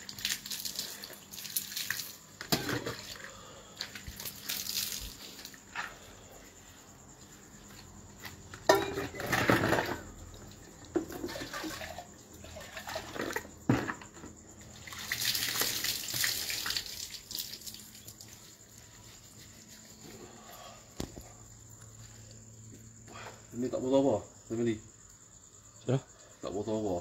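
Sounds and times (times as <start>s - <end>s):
water pouring: 0.0s - 3.2s, 4.0s - 5.6s, 11.1s - 13.5s, 14.8s - 18.4s.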